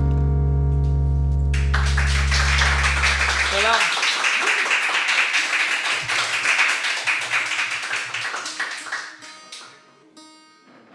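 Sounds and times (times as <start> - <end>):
audience clapping: 1.5 - 9.8.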